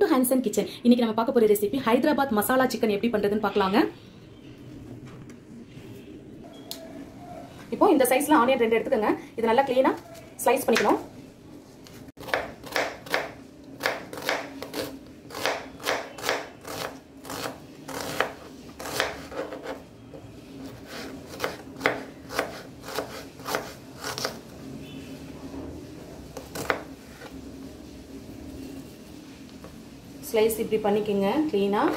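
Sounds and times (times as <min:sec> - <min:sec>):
knife slicing onion on board: 0:12.2 - 0:19.8, 0:20.6 - 0:24.4, 0:26.3 - 0:26.9.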